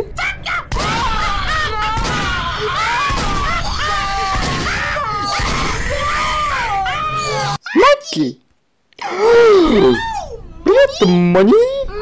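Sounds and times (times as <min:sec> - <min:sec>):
cartoon voices screaming: 0:00.2 - 0:08.0, 0:09.0 - 0:11.4
gunshots: 0:01.9 - 0:03.6, 0:04.3 - 0:04.8.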